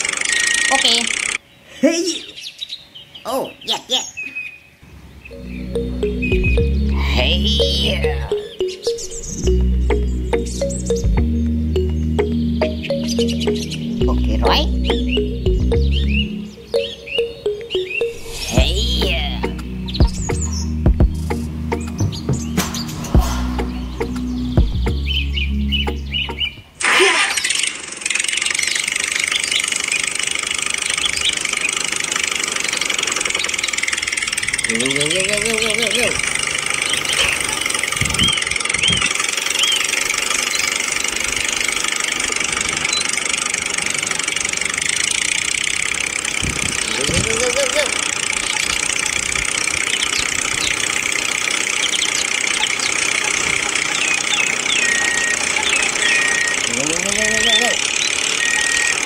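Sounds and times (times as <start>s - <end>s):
toy tractor engine buzzing: 0.0s - 1.4s, 26.8s - 59.0s
high falling chirps: 4.9s - 59.0s.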